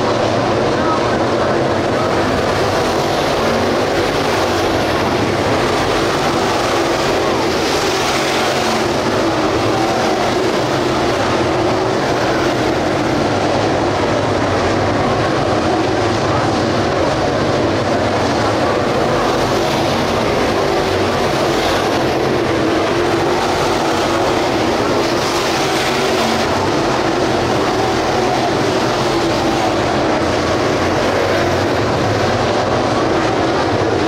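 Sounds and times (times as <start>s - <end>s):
race car engines roaring: 0.0s - 34.0s.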